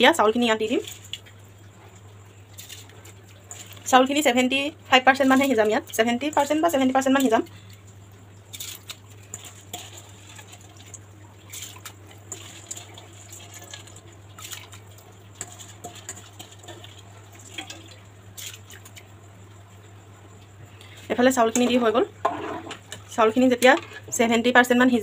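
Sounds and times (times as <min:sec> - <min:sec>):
low steady hum: 0:00.0 - 0:25.0
light wet splashes: 0:00.5 - 0:19.2.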